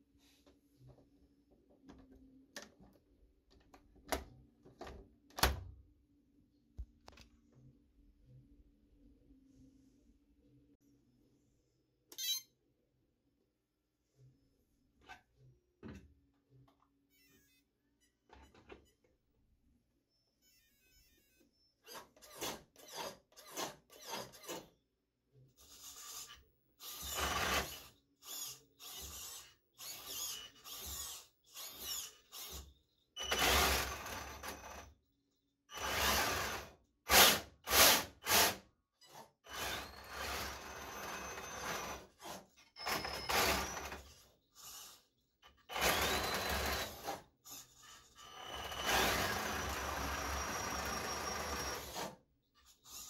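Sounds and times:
toy motors whirring: 0:25.5 - 0:34.9, 0:35.7 - 0:53.0.

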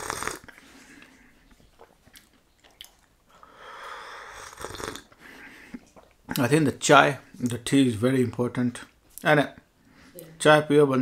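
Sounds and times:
person slurping tea: 0:00.0 - 0:01.0, 0:02.8 - 0:05.9
mouth clicks: 0:01.8 - 0:03.1.

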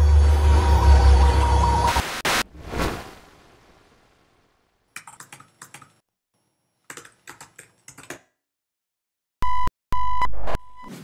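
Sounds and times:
keyboard typing: 0:05.0 - 0:06.0, 0:06.8 - 0:08.3.

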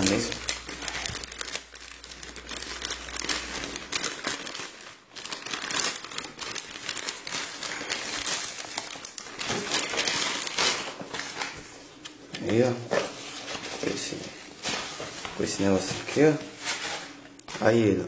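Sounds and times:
packaging being torn and crinkled: 0:00.0 - 0:12.7.

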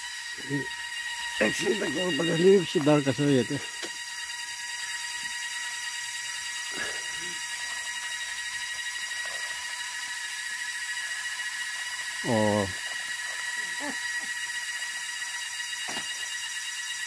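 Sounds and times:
high-pitched multi-tone buzz: 0:00.0 - 0:17.0.

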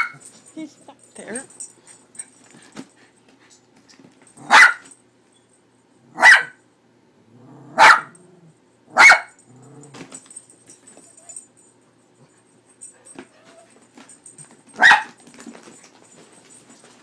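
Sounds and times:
small dog barking: 0:00.0 - 0:00.2, 0:04.4 - 0:04.9, 0:06.1 - 0:06.6, 0:07.7 - 0:08.2, 0:08.9 - 0:09.4, 0:14.8 - 0:15.2.

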